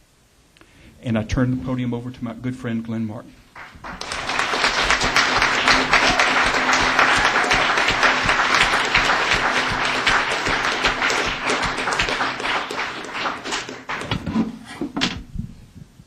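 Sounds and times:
crowd applauding: 3.6 - 14.4.

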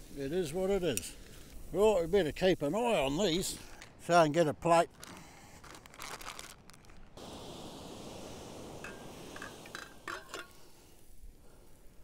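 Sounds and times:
dishes clinking: 8.8 - 10.7.

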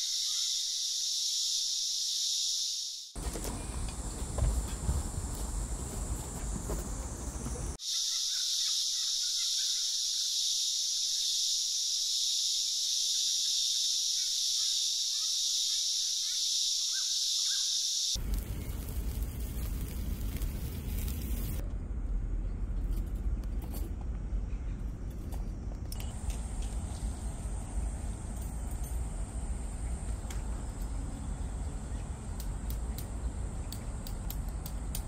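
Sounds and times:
faint chirps: 0.0 - 3.9, 7.0 - 18.9
insects chorus: 0.0 - 21.6, 25.4 - 35.0.

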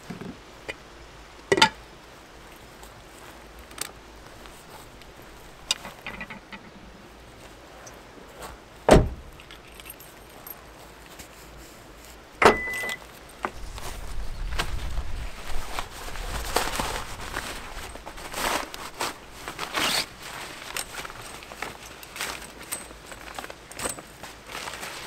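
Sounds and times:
car door slamming: 8.9 - 9.3
keys rattling: 9.3 - 11.4, 19.5 - 24.3.

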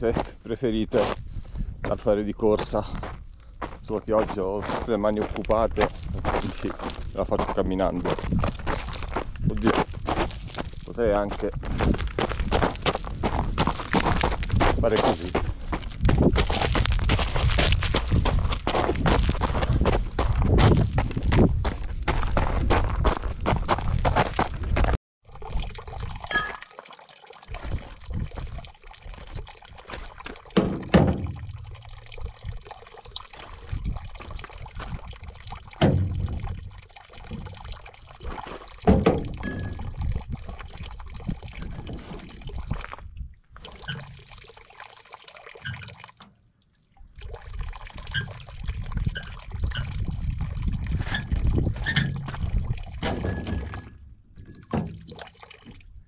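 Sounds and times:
water pouring from fountain pipe: 25.2 - 56.0
plastic bottles knocking: 38.8 - 39.8.

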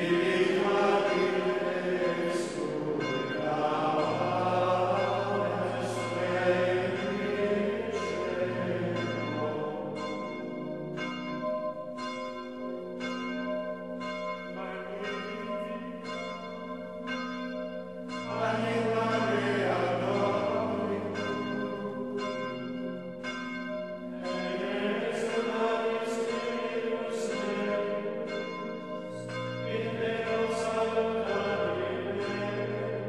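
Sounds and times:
choir singing: 0.0 - 10.2, 18.3 - 22.2, 24.2 - 33.0
ringing bells: 0.0 - 33.0.

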